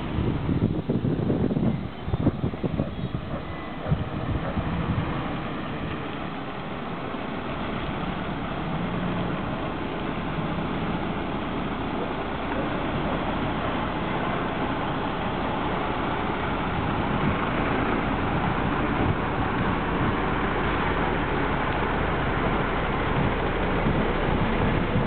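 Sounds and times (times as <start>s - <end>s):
truck diesel engine: 0.0s - 25.0s.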